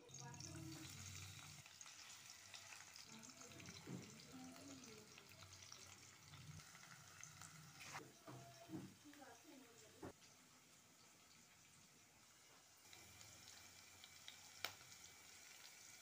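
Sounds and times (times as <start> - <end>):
vegetables sizzling in oil: 0.0 - 16.0
small crackles: 12.5 - 15.9.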